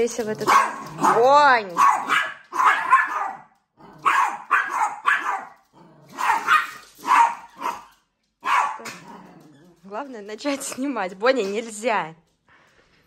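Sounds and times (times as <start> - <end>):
small dog barking: 0.4 - 9.2.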